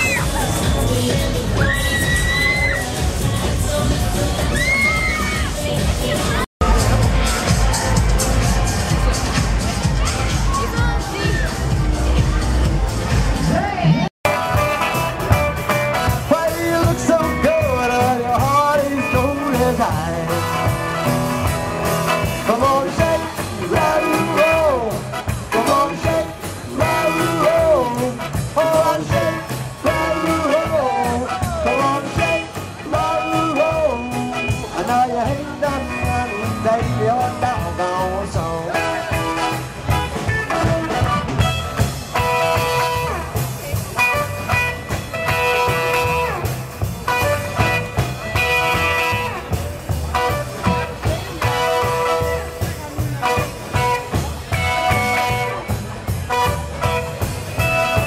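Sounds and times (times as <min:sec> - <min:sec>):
person singing: 0:00.0 - 0:07.7, 0:15.7 - 0:21.3, 0:22.1 - 0:41.4
rock and roll band playing: 0:00.0 - 0:58.0.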